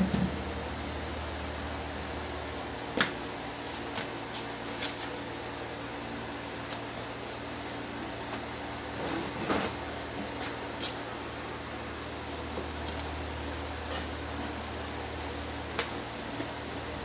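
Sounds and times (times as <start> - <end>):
refrigerator humming: 0.0 - 17.0.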